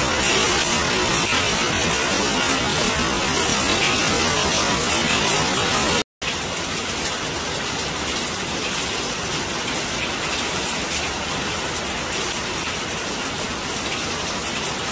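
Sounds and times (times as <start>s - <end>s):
hail on paving and metal fence: 0.0s - 11.2s.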